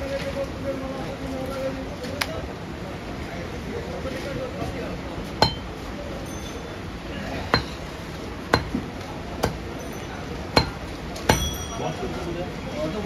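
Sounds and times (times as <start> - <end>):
cleaver chopping on wooden block: 5.4 - 5.7, 7.5 - 7.8, 8.5 - 9.7, 10.6 - 11.5.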